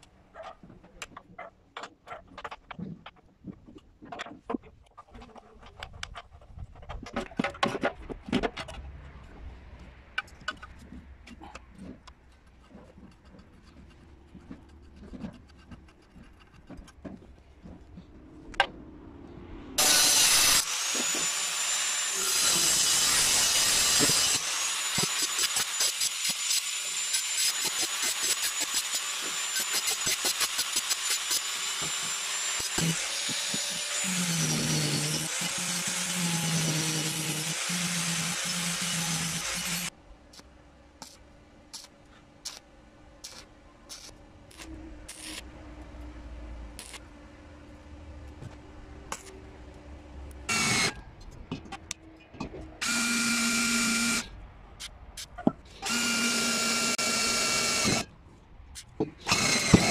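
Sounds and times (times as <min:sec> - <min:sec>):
angle grinder cutting metal: 0:19.8 - 0:39.9, 0:43.2 - 0:45.4, 0:50.5 - 0:51.0.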